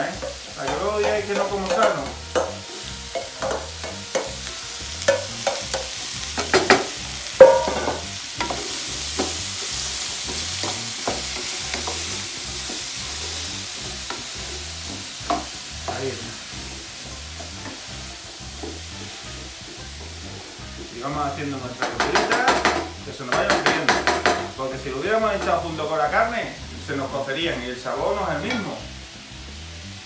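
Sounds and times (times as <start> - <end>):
vegetables sizzling in oil: 0.0 - 30.0
wooden spoon knocking a pan: 0.2 - 4.4, 5.1 - 9.4, 15.2 - 16.0, 21.8 - 24.6.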